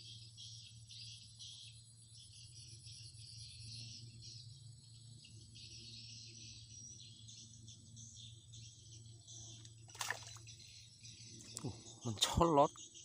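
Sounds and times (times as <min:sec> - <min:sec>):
high ticking insect call: 0:00.0 - 0:13.0
insects chirping: 0:00.0 - 0:13.0
low steady hum: 0:00.0 - 0:13.0.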